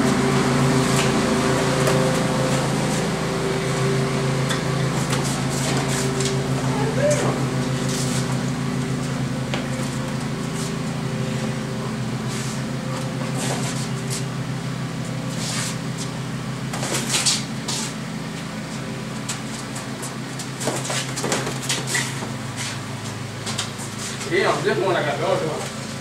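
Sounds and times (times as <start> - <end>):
low mechanical hum: 0.0 - 26.0
feet scuffing on stone patio: 7.3 - 10.8, 12.3 - 14.3, 15.2 - 24.4.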